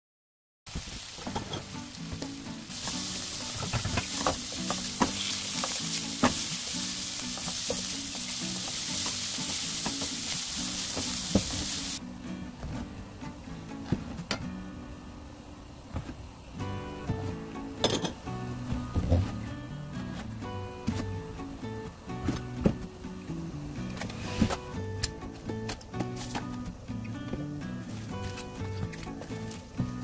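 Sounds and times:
meat sizzling in a frying pan: 0.7s - 12.0s
soft background music: 1.0s - 30.0s.

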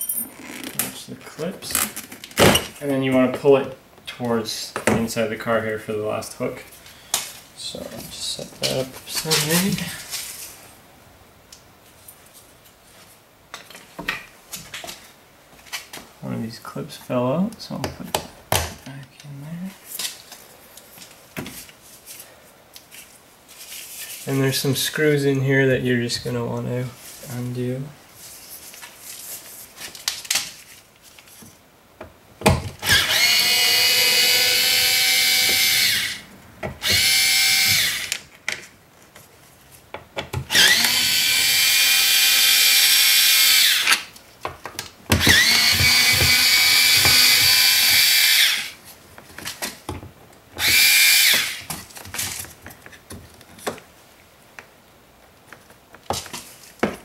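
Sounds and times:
cordless power driver whining: 32.8s - 38.2s, 40.5s - 44.1s, 45.2s - 48.8s, 50.6s - 51.7s.

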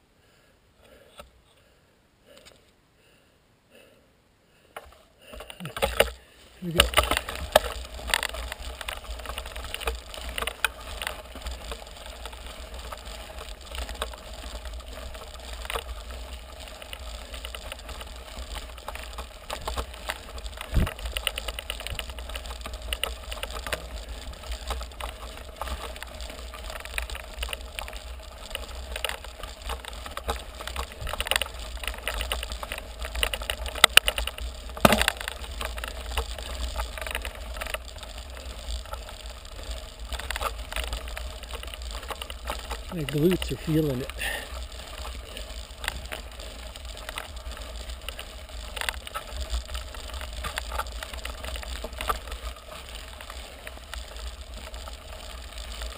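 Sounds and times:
bike rattling: 4.8s - 55.9s
tyres crunching over gravel: 5.6s - 55.9s
clicks and sharp knocks: 34.8s - 35.4s.

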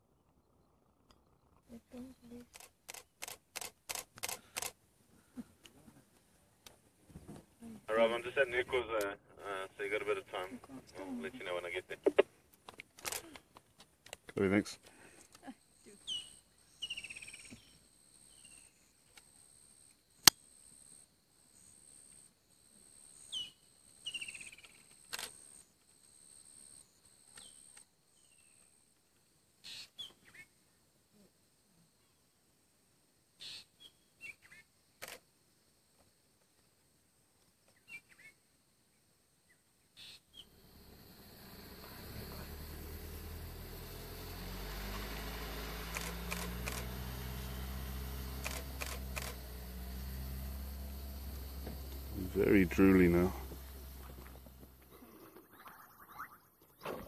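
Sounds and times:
camera shutter clicks: 2.5s - 4.8s, 13.0s - 13.3s, 35.0s - 35.2s, 45.9s - 46.9s, 48.4s - 49.4s
sharp click: 2.5s - 4.8s
steady low hum: 40.4s - 55.7s
bird whistles and trills: 55.4s - 57.0s.

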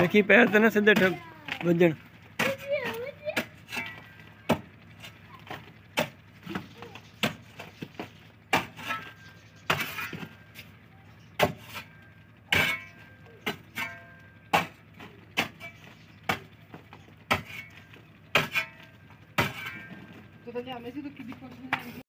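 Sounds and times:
hoe chopping into mud wall: 7.2s - 10.3s, 11.4s - 11.9s, 17.3s - 18.8s, 19.4s - 19.9s.

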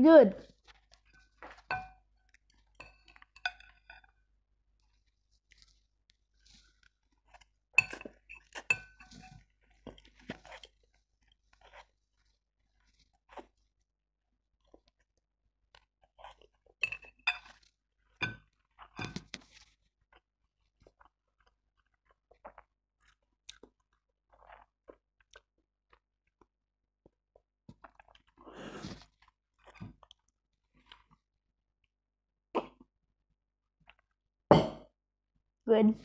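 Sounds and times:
noodles slurped: 27.7s - 31.2s.

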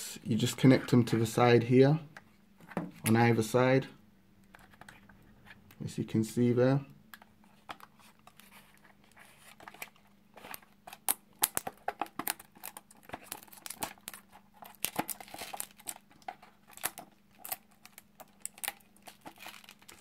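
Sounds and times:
plastic crinkling and crackling: 7.6s - 20.0s.

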